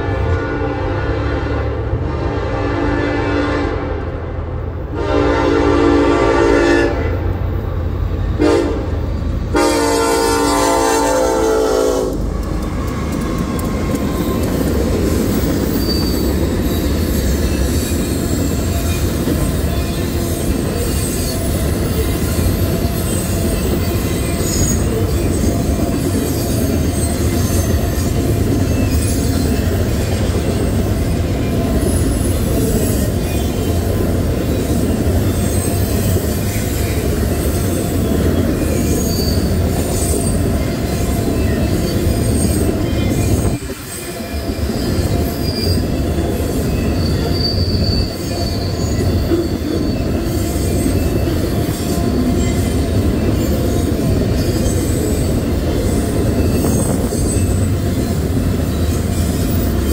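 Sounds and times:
locomotive horn blasts: 0:00.0 - 0:04.1, 0:04.9 - 0:07.3, 0:08.4 - 0:12.3
diesel locomotive rumble: 0:00.0 - 0:59.9
train wheels clattering on rail: 0:09.0 - 0:59.9
wheel squeal: 0:15.3 - 0:33.7, 0:34.5 - 0:59.9.

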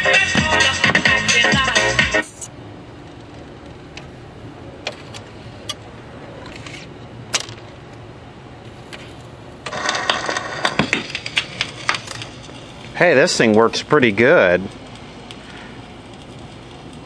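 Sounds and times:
record changer clicking and rattling: 0:08.7 - 0:13.6.

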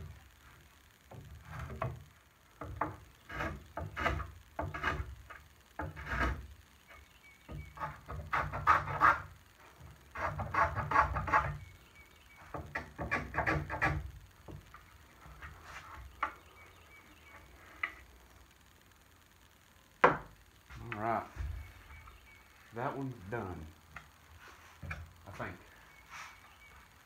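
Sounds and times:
hand plane scraping wood: 0:03.2 - 0:06.5, 0:07.6 - 0:09.3, 0:10.1 - 0:11.6, 0:12.7 - 0:14.1.

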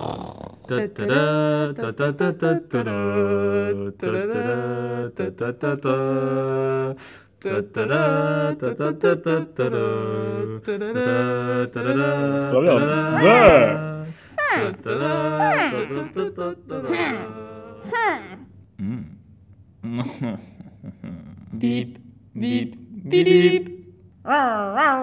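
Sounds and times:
person humming low notes: 0:11.9 - 0:22.0.

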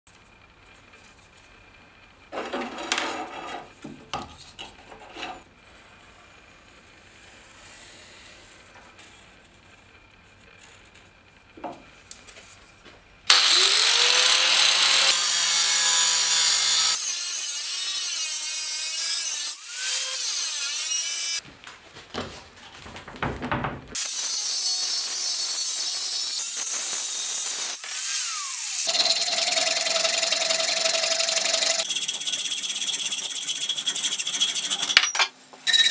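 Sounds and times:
angle grinder cutting steel: 0:13.3 - 0:21.4, 0:24.0 - 0:35.9.

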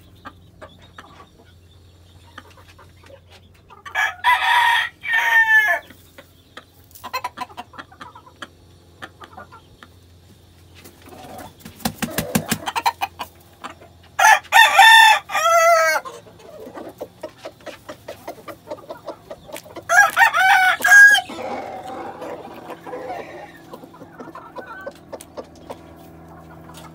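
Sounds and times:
chicken clucks and clicks: 0:00.0 - 0:04.3, 0:05.1 - 0:26.9
rooster crowing: 0:03.9 - 0:05.8, 0:14.2 - 0:16.1, 0:19.9 - 0:23.8.

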